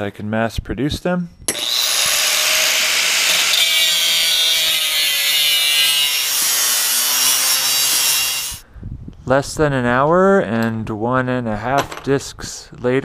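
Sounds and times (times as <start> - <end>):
angle grinder cutting steel: 1.5 - 8.6.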